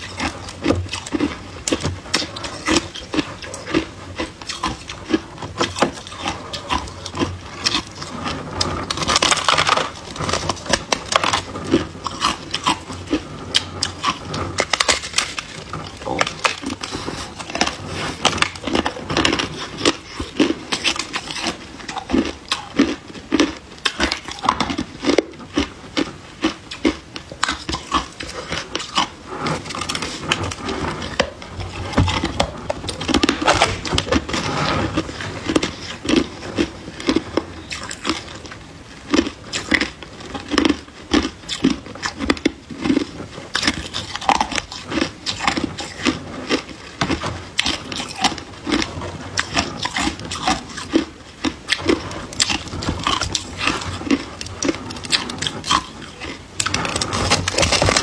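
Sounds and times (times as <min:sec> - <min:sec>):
ice crunching while chewed: 0:00.0 - 0:58.0.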